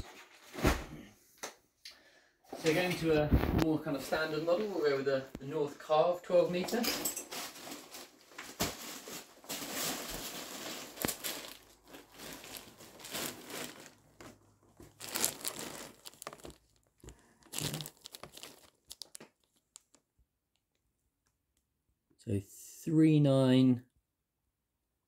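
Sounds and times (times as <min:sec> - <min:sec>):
fabric bag rustling and crinkling: 0:02.7 - 0:04.8, 0:07.2 - 0:20.0.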